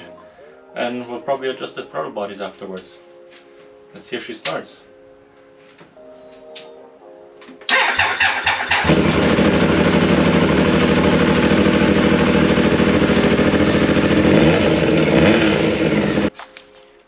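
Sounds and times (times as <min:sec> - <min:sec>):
motorcycle starter cranking: 0:07.7 - 0:16.3
motorcycle engine running: 0:08.5 - 0:16.3.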